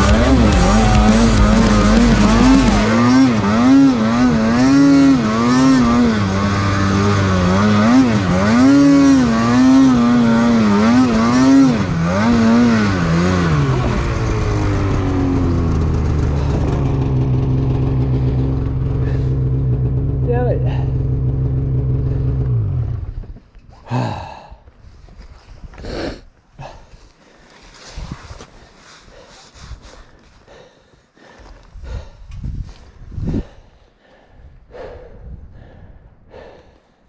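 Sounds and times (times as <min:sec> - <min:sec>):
snowmobile engine revving: 0:00.0 - 0:23.2.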